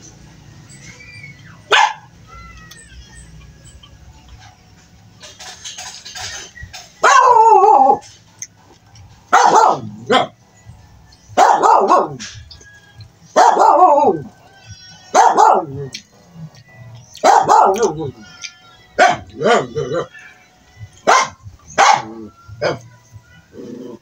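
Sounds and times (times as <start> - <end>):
dog barking: 1.7 - 2.1, 7.0 - 8.0, 9.3 - 10.4, 11.4 - 12.3, 13.4 - 14.2, 15.1 - 15.8, 17.2 - 18.0, 19.0 - 20.1, 21.0 - 22.9.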